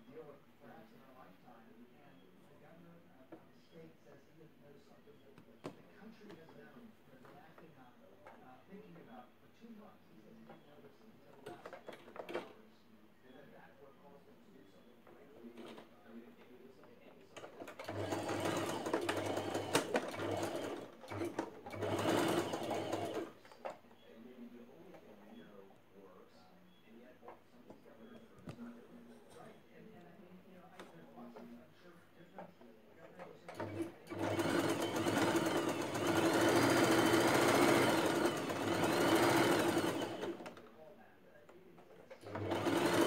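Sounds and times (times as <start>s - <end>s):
sewing machine stitching: 17.4s - 23.8s, 33.1s - 40.7s, 41.8s - 43.0s.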